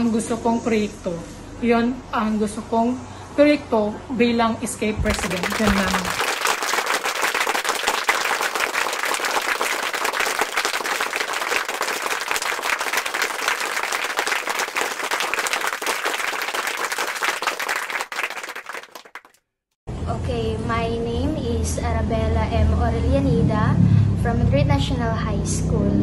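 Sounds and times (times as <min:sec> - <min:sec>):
hands clapping: 0:05.0 - 0:19.4.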